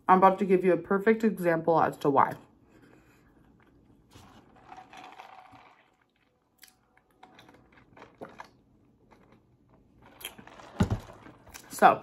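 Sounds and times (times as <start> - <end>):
chewing: 3.4 - 10.7.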